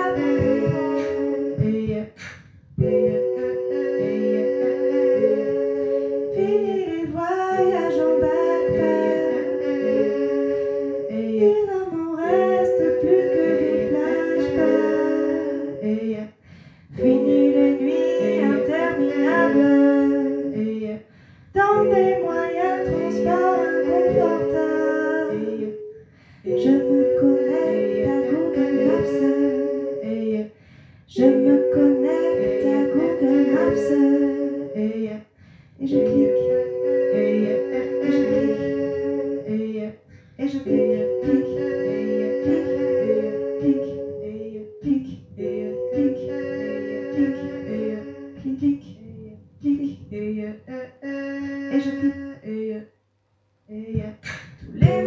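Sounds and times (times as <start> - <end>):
steady pulsing beat: 0.0 - 2.1, 2.8 - 15.8, 17.0 - 20.5, 21.6 - 30.2, 31.2 - 34.8, 35.9 - 39.6, 40.5 - 48.8, 54.7 - 55.0
woman singing: 0.0 - 2.2, 6.3 - 10.0, 11.1 - 16.4, 17.0 - 21.0, 21.6 - 30.5, 31.1 - 50.7, 51.4 - 52.9, 53.7 - 55.0
held chords: 2.8 - 16.0, 16.9 - 20.8, 21.6 - 30.4, 31.2 - 35.1, 35.8 - 39.8, 40.4 - 50.3.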